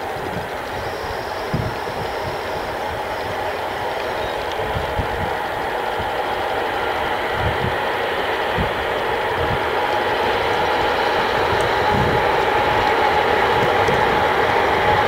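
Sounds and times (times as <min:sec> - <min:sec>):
electric locomotive running: 0:00.0 - 0:15.0.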